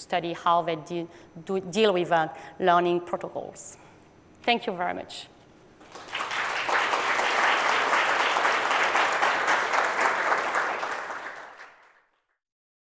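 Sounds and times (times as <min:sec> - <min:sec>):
audience applauding: 0:05.8 - 0:12.2.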